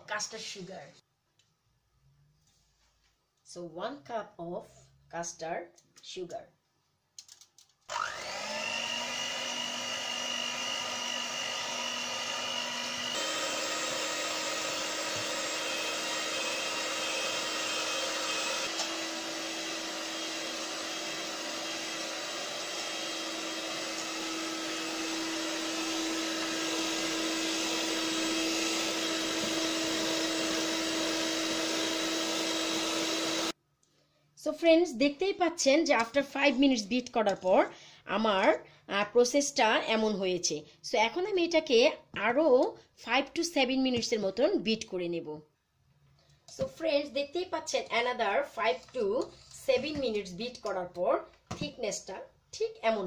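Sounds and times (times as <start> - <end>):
electric hand mixer whining: 7.9 - 33.6.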